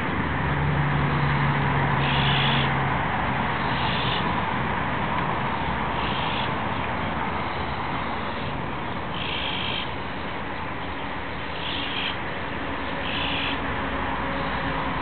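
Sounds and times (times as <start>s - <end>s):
raspy bird calls: 2.0s - 2.7s, 3.6s - 4.3s, 5.9s - 6.8s, 7.4s - 10.0s, 11.5s - 12.2s, 12.9s - 13.6s.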